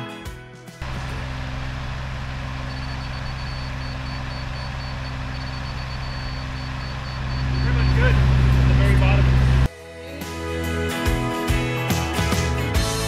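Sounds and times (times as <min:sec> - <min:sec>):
heavy equipment engine running: 0:00.8 - 0:09.7
faint high beep: 0:02.7 - 0:08.2.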